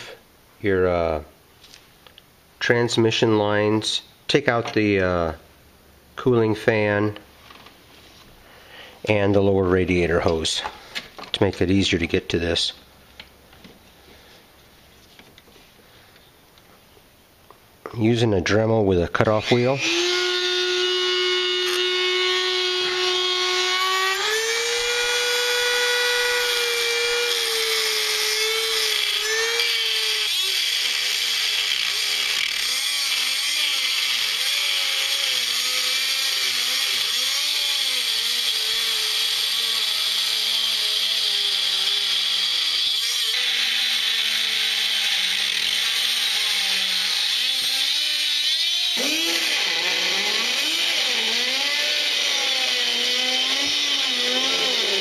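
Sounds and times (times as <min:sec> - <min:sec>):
rotary tool cutting steel: 0:19.3 - 0:55.0.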